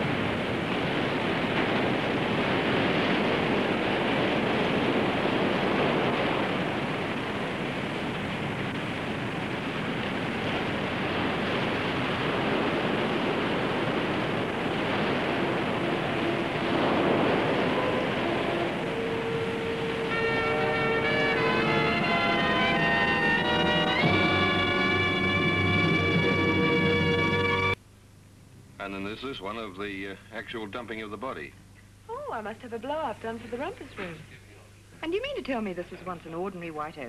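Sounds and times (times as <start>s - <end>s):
ocean surf breaking: 0.0s - 27.8s
wind blowing: 0.0s - 27.8s.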